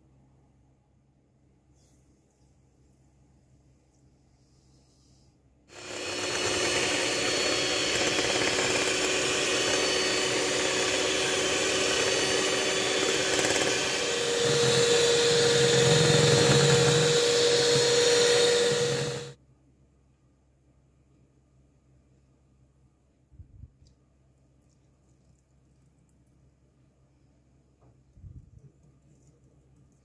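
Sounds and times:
electric hand mixer whipping: 5.7 - 19.4.

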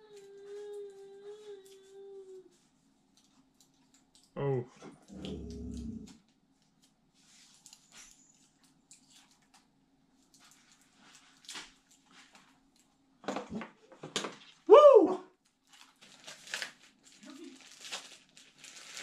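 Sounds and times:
faint steady hum: 0.0 - 18.8
person cheering: 14.7 - 15.3.

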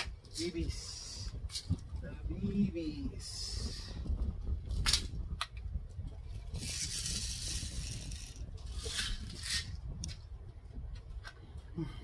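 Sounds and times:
steel bbs rattling: 6.6 - 9.8.

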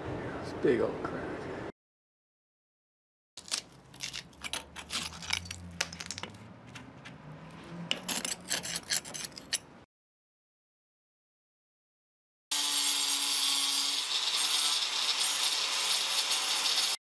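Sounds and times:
steel scraper scraping mortar: 7.9 - 9.7, 13.5 - 17.0.

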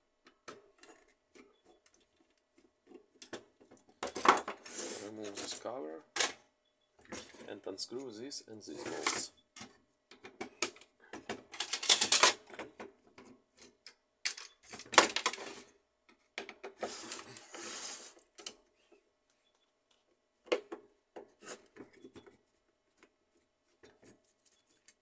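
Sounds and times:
screwdriver and plastic parts clattering: 8.8 - 15.7.

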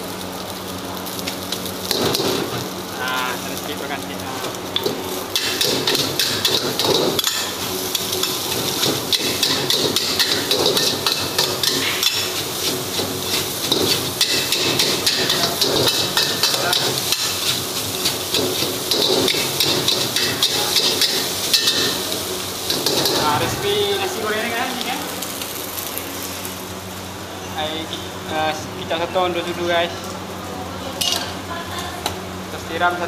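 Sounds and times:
utensils scraping a wok: 4.7 - 23.4.

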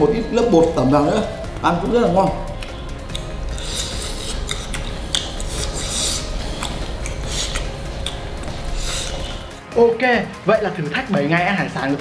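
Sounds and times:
chewing crispy fried shrimp: 2.5 - 9.6.

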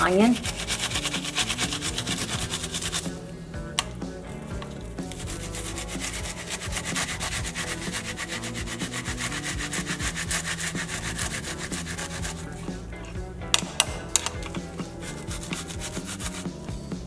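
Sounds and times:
onion grated on metal grater: 0.1 - 3.2, 4.6 - 12.8, 14.6 - 16.6.

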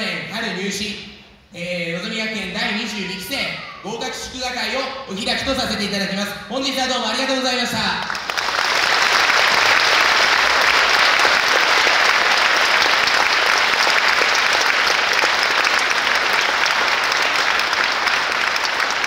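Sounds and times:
audience applauding: 8.0 - 19.0.

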